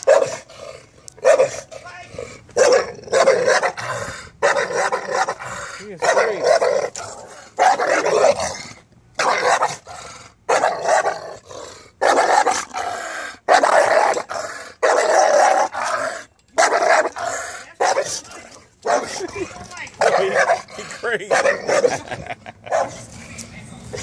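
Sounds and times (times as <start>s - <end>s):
dog barking: 0.0s - 0.4s, 1.2s - 1.6s, 2.6s - 3.8s, 22.7s - 23.0s.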